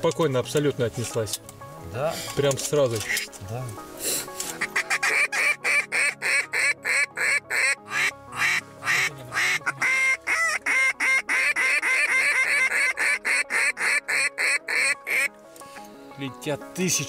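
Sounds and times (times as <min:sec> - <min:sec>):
duck call quacks: 0:04.6 - 0:15.3.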